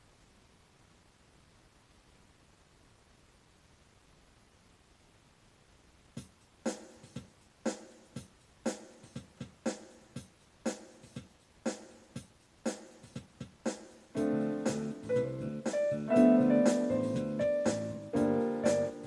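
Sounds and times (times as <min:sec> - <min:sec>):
electronic drum beat: 0:06.2 - 0:19.0
sustained electric piano chord: 0:14.2 - 0:19.0.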